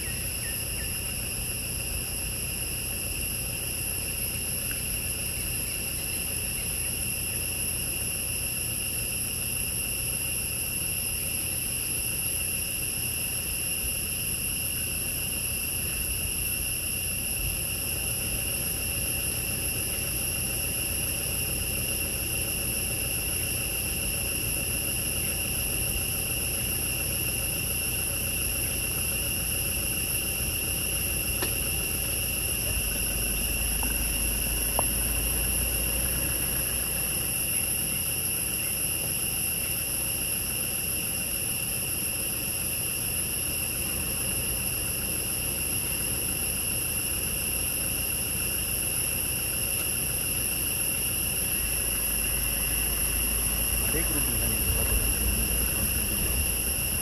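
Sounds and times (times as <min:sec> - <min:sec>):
low steady rumble: 0:00.0 - 0:39.1, 0:50.9 - 0:57.0.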